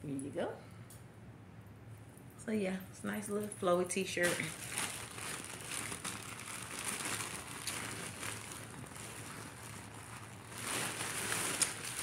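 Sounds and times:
clothing rustling: 4.2s - 12.0s.

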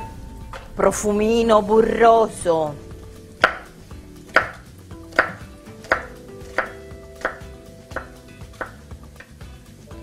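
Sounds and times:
knife chopping on wooden board: 3.4s - 3.7s, 4.3s - 9.3s.

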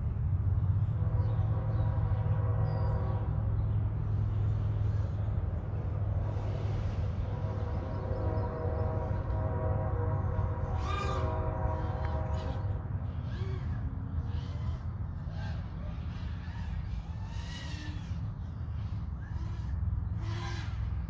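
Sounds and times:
steady low rumble: 0.0s - 21.0s
birds calling harshly: 6.2s - 21.0s.

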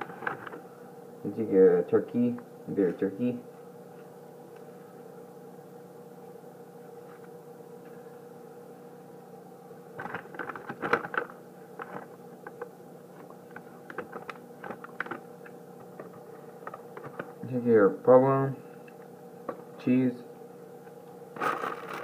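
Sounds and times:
food packaging crinkling and clicks: 0.0s - 0.6s, 10.0s - 17.4s.

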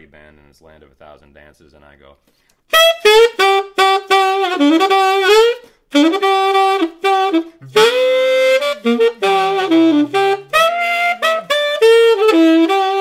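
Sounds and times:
saxophone playing: 2.7s - 13.0s.

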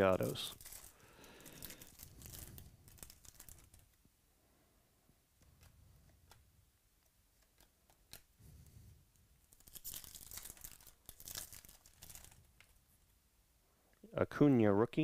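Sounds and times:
foil wrapper tearing: 0.0s - 3.9s, 9.5s - 12.4s
cards clicking: 7.4s - 8.3s.

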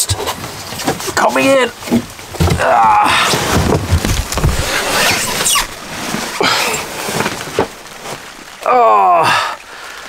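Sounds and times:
jacket scraping against hull: 0.0s - 8.6s
body thumps: 2.0s - 8.3s
short squeaks: 4.3s - 5.8s.

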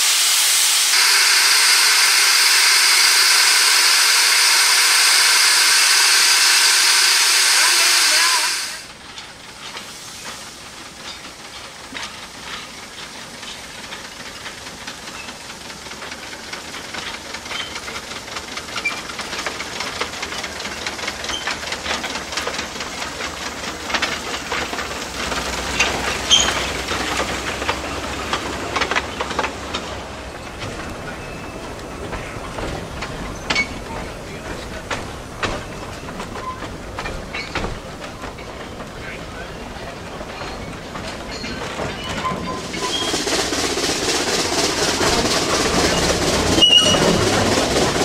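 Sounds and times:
loud steam blast: 0.0s - 8.9s
steam hissing: 0.0s - 48.0s
train clicks and knocks: 0.9s - 48.0s.

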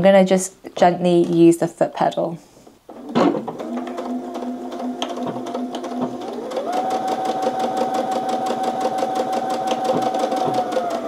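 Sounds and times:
sewing machine stitching: 3.0s - 11.0s.

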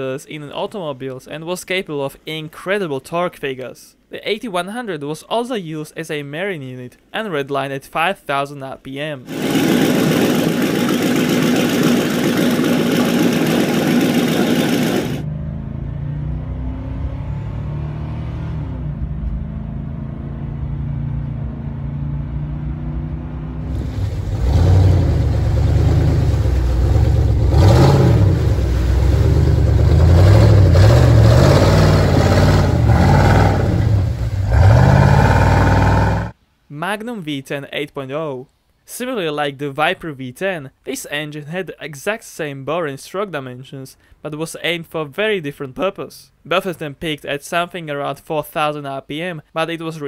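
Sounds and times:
engine revving: 9.3s - 36.4s.

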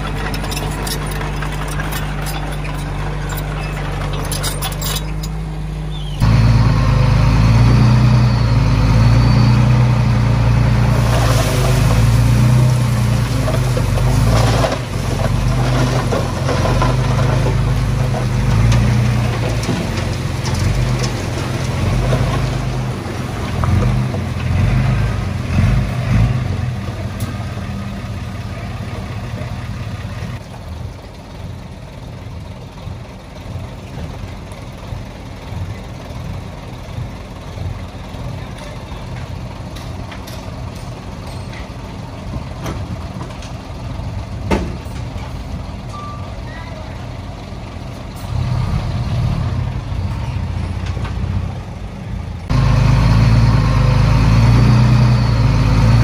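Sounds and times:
stone and dirt clattering: 0.0s - 5.5s, 11.0s - 24.6s
heavy diesel engine under load: 0.0s - 56.0s.

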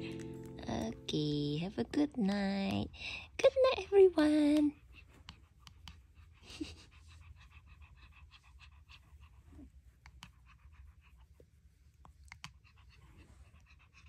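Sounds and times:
dog panting faintly: 4.6s - 14.0s.

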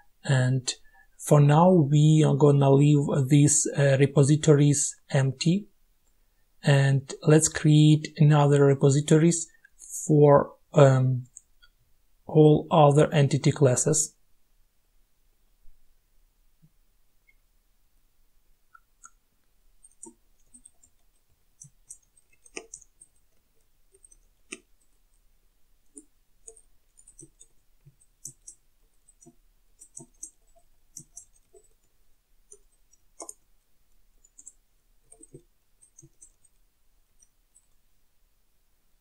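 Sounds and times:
computer keyboard typing: 19.8s - 25.2s, 25.8s - 37.8s.

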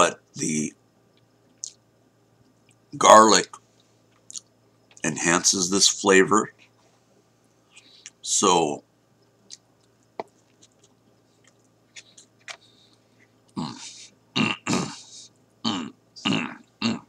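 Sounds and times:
mouth chewing clicks and smacks: 1.1s - 1.8s, 4.1s - 5.0s, 9.2s - 12.6s.

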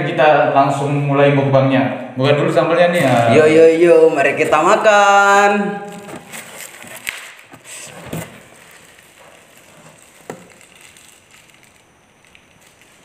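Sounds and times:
food crackling pulled apart: 8.6s - 13.0s.

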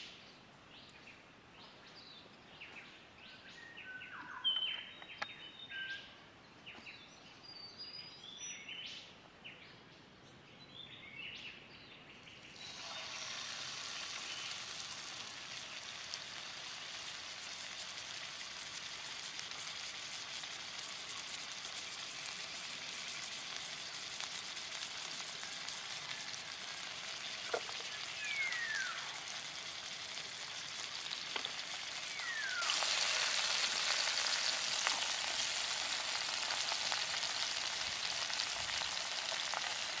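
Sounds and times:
steak sizzling in hot oil: 12.6s - 40.0s.

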